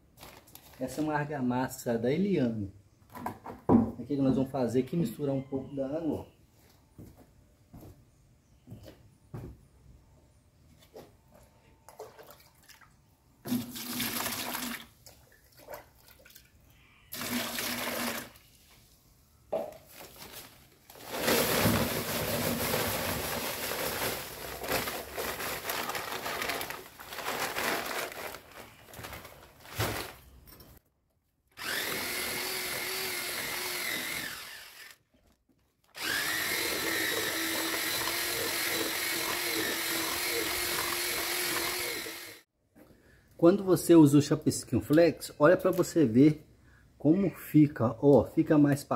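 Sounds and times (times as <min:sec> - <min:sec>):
electric drill mixing mortar: 0:17.2 - 0:18.4, 0:21.0 - 0:28.0, 0:31.6 - 0:35.0, 0:35.9 - 0:42.5.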